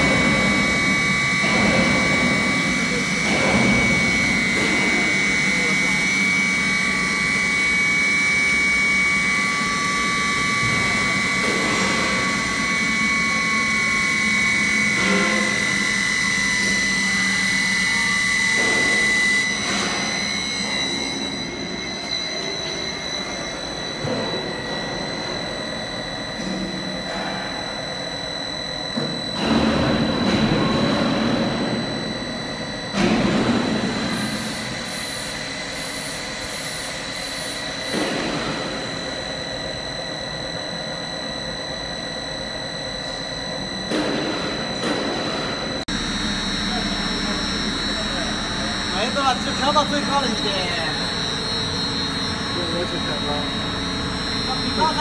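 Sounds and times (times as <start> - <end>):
high-speed mixer whine: 0.0 - 55.0
loud noise bursts: 45.8 - 55.0.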